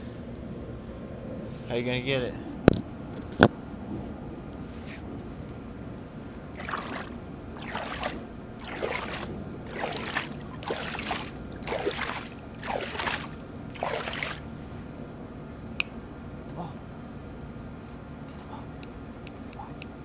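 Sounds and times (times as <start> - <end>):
pool water sloshing against edge: 6.5 - 14.5.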